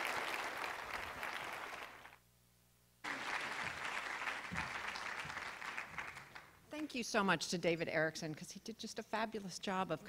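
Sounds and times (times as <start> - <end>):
audience applauding: 0.0 - 2.2, 3.0 - 6.5.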